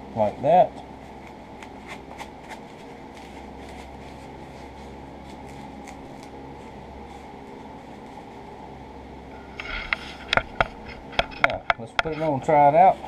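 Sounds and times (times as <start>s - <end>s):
steady background hum: 0.0s - 13.0s
foam rustling and tapping: 9.9s - 13.0s.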